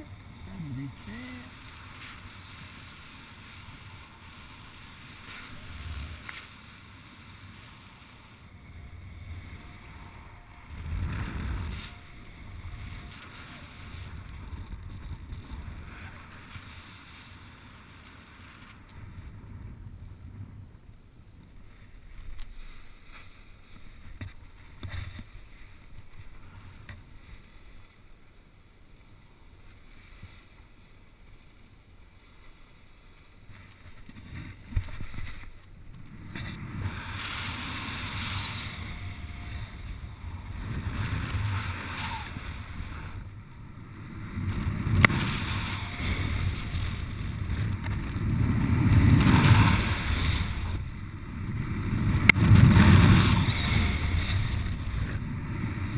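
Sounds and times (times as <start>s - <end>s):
wind rushing over microphone: 0.0s - 17.7s, 34.0s - 55.9s.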